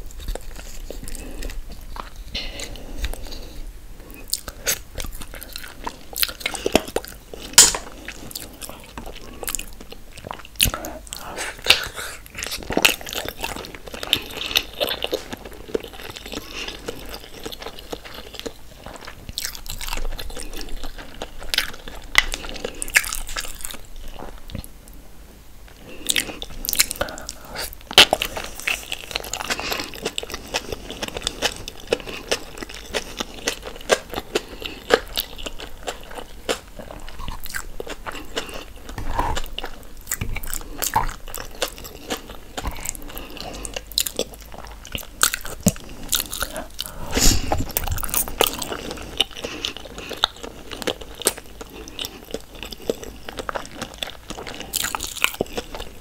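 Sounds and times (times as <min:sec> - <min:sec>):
chewing and lip-smacking: 0:00.0 - 0:24.7, 0:25.7 - 0:56.0.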